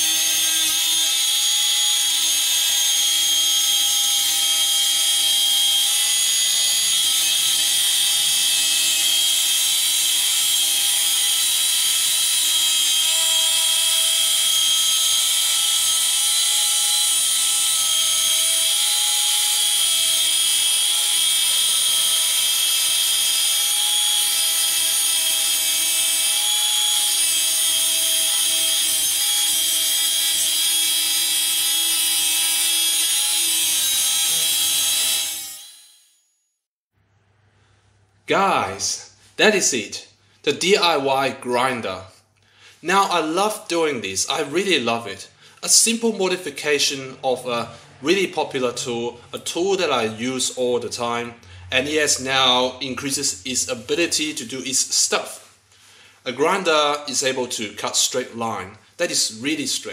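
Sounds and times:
angle grinder whine: 0:00.0 - 0:36.3.

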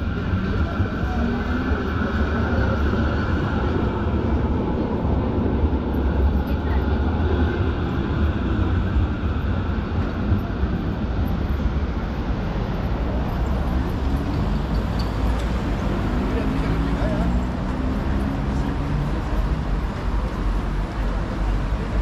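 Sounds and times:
city traffic rumble: 0:00.0 - 0:22.0.

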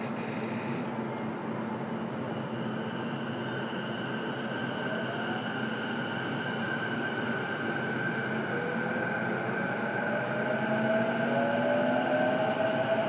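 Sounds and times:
electric train inverter whine: 0:00.0 - 0:13.0.

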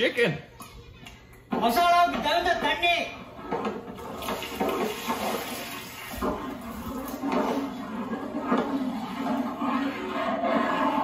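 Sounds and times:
liquid pouring into a pot: 0:03.9 - 0:08.0.

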